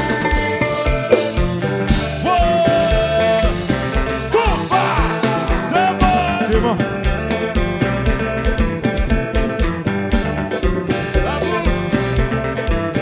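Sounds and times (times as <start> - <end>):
guitar and keyboards: 0.0 - 13.0
person singing: 2.0 - 7.4, 11.1 - 12.0.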